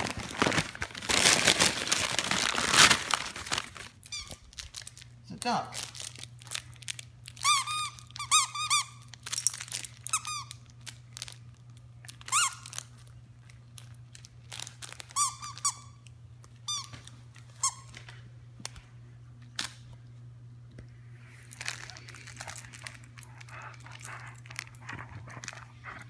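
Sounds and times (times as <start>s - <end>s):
squeaky toy squeaking: 7.4s - 9.0s
dog chewing clicks: 22.5s - 26.0s.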